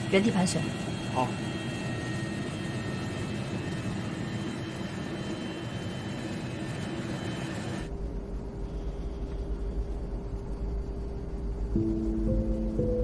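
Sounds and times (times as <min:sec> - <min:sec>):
jet airliner engine drone: 0:00.0 - 0:13.0
deep low music rumble: 0:07.9 - 0:13.0.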